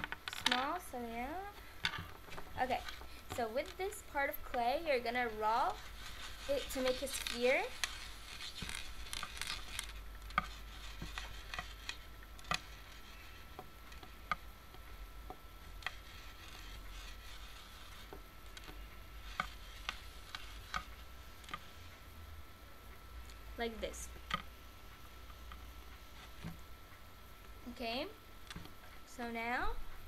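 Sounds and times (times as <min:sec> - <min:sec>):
hands rolling clay: 0:00.0 - 0:21.9
low steady hum: 0:00.0 - 0:30.0.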